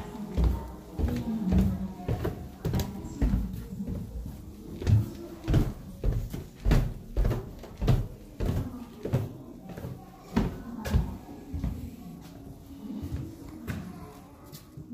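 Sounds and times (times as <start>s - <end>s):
footsteps on wooden stairs: 0.0s - 14.6s.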